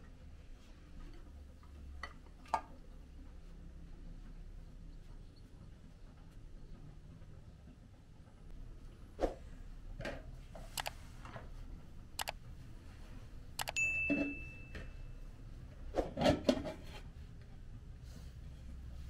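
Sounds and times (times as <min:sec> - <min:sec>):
high ringing ding: 0:13.7 - 0:15.3.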